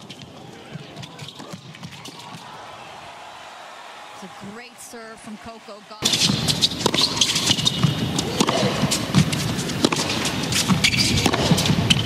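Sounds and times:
crowd cheering: 0:00.1 - 0:09.4
shouts from the stands: 0:02.0 - 0:06.1
crowd clapping: 0:02.0 - 0:06.6.

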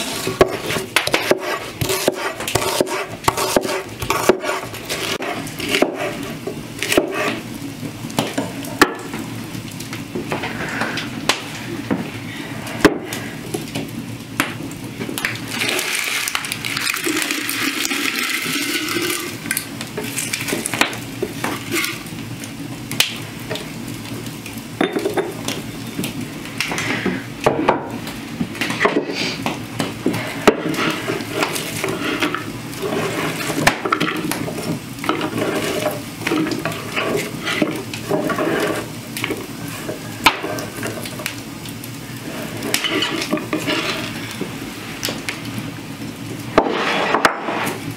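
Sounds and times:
knife chopping on wooden board: 0:00.4 - 0:06.0
rustle of onion pieces: 0:28.7 - 0:47.9.

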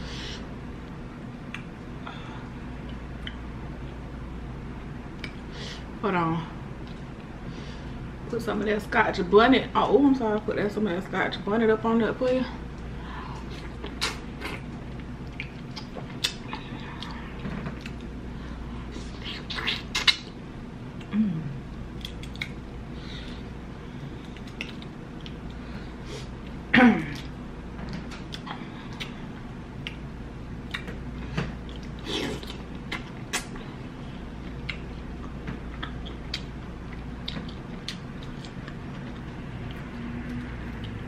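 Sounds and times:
wet mouth smacks: 0:19.2 - 0:20.3, 0:22.0 - 0:22.6.

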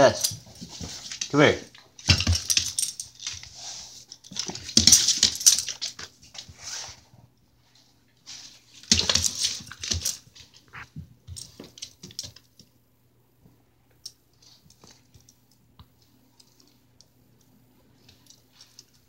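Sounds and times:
dog scuffling on wooden floor: 0:00.0 - 0:12.4.

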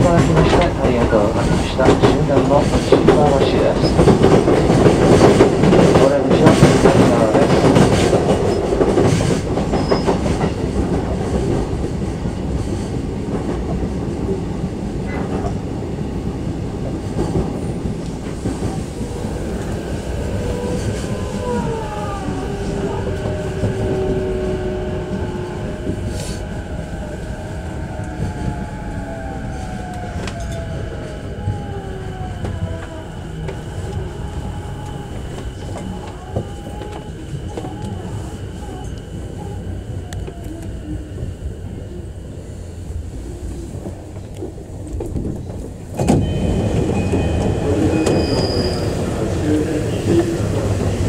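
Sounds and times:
train wheels rumbling: 0:00.0 - 0:51.0
electric train motor whine: 0:18.8 - 0:45.2.

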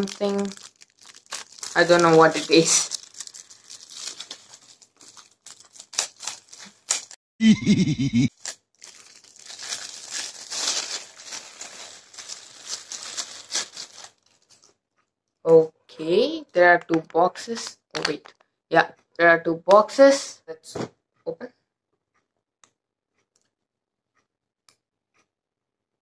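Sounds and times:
wrapping crinkling and crackling: 0:00.0 - 0:07.2, 0:08.3 - 0:14.8.

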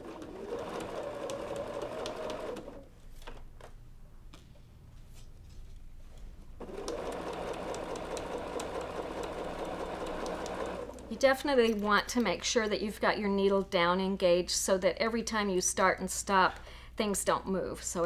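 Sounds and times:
electric sewing machine stitching: 0:00.0 - 0:02.9, 0:06.6 - 0:11.2.

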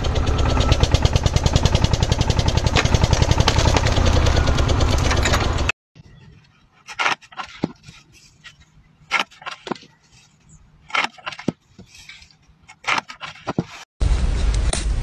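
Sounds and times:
shears snipping roots: 0:06.8 - 0:13.8.

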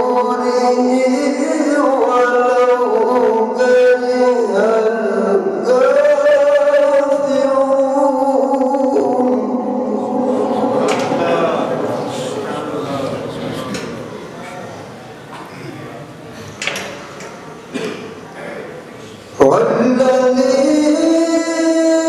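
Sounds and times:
man chanting recitation: 0:00.0 - 0:14.8, 0:18.4 - 0:22.0.

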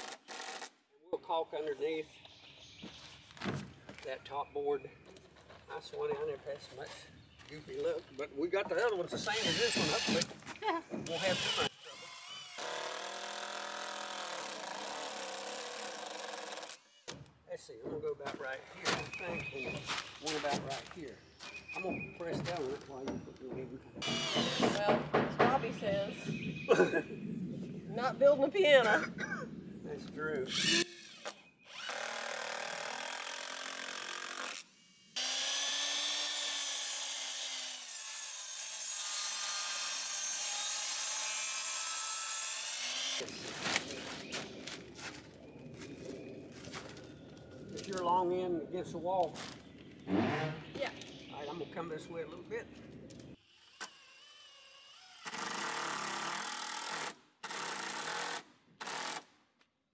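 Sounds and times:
miter saw cutting wood: 0:09.1 - 0:17.2, 0:24.0 - 0:25.0, 0:30.4 - 0:43.9, 0:53.4 - 0:59.2
impact driver motor whine: 0:09.2 - 0:10.3, 0:24.0 - 0:24.9, 0:30.5 - 0:32.1
impact driver hammering: 0:09.2 - 0:10.4, 0:24.0 - 0:25.6.

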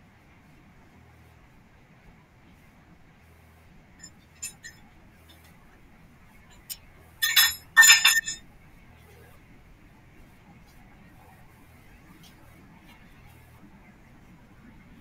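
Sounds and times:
ringing metallic clanks: 0:04.0 - 0:04.8, 0:06.6 - 0:08.4.

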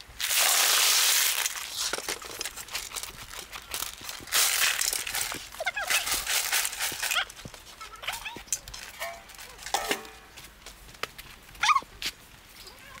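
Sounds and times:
crushed ice pouring into metal basin: 0:00.2 - 0:03.1, 0:03.7 - 0:07.3
ice crunching and clinking: 0:00.2 - 0:10.4.

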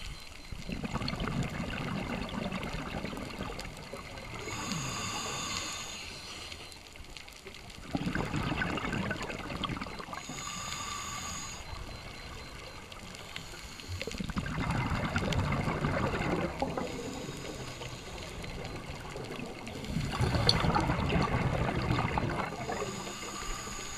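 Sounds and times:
exhaled air bubbling: 0:00.0 - 0:06.2, 0:07.1 - 0:23.9
regulator breathing hiss: 0:04.4 - 0:06.7, 0:10.2 - 0:11.9, 0:13.2 - 0:14.2, 0:16.8 - 0:18.5, 0:22.6 - 0:23.9.

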